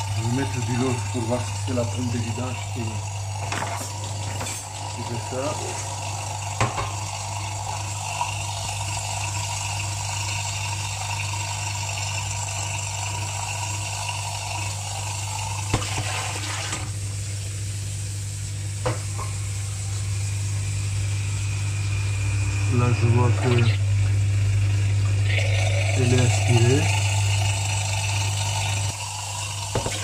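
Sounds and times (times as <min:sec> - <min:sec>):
drain pump humming: 0:00.0 - 0:30.0.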